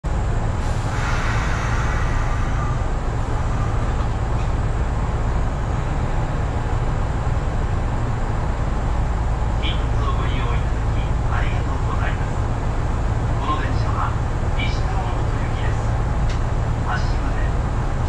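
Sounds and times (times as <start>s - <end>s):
train equipment low hum: 0.0s - 18.0s
higher hiss: 0.6s - 4.2s.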